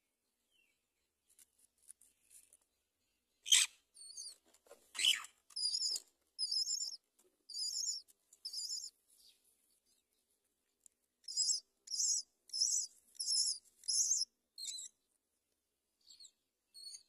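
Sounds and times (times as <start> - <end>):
nestlings chirping: 3.4 - 10.1, 11.2 - 15.1, 16.0 - 17.0.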